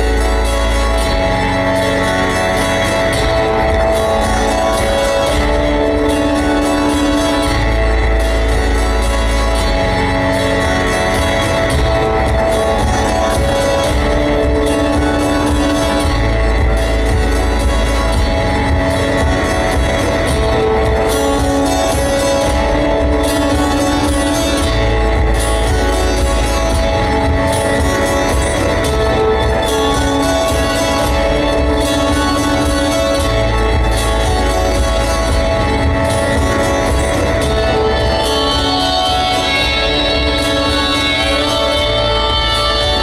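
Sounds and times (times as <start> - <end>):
amplified guitar tones: 0.0 - 43.0.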